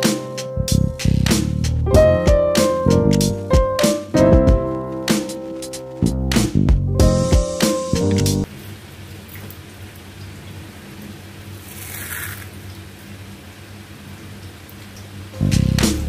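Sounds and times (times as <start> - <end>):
fried onions crackling: 11.6 - 12.7.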